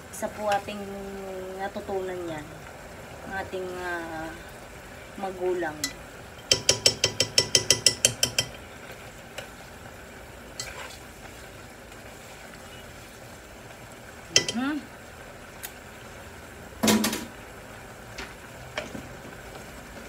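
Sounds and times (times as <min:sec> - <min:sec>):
metal spoon clinking in a pot: 0:05.8 - 0:08.6, 0:14.3 - 0:14.6.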